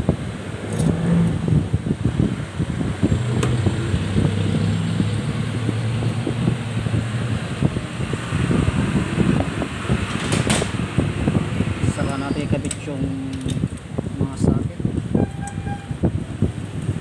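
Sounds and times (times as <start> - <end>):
rumbling background noise: 0.0 - 17.0.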